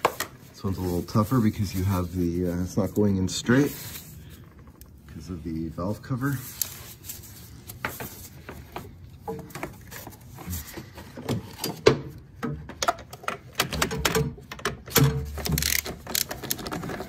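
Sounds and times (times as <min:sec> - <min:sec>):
clicks and taps of metal parts: 0:12.4 - 0:16.7.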